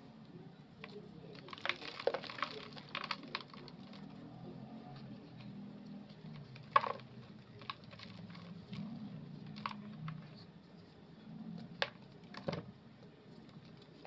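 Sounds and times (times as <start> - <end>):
dry clay crumbling between fingers: 0.8 - 10.4
fragments falling into a basin: 1.4 - 4.1, 6.6 - 8.8.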